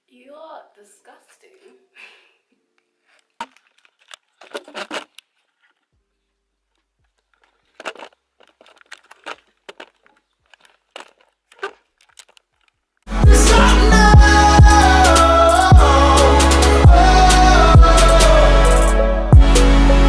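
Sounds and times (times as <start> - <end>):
camera handling noise: 2.8 - 5.9.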